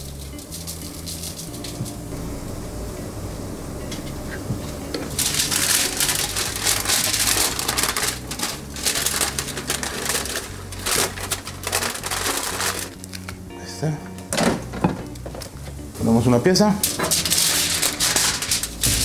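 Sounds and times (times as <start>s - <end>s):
aluminium foil crinkling: 0.0s - 2.0s, 5.0s - 13.4s, 16.8s - 19.0s.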